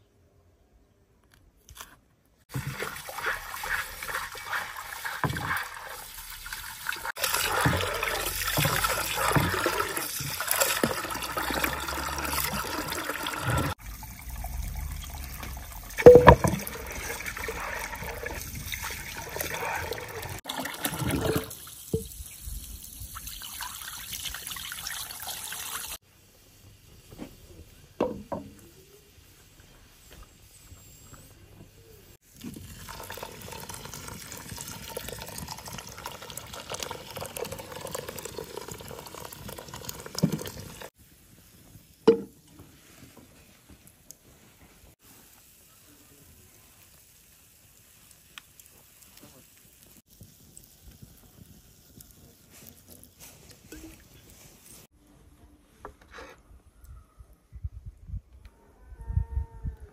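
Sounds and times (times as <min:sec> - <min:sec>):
water splashing into stone basin: 0:02.5 - 0:26.0.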